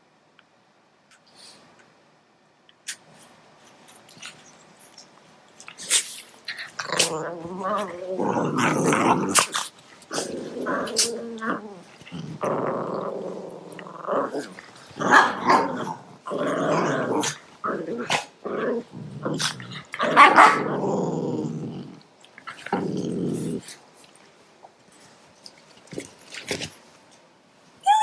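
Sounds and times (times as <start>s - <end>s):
dogs growling: 5.6s - 23.9s.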